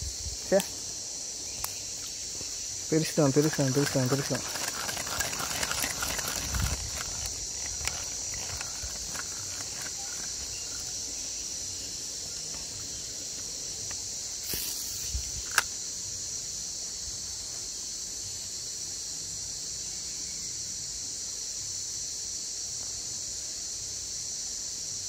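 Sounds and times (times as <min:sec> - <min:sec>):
insects buzzing: 0:00.0 - 0:25.0.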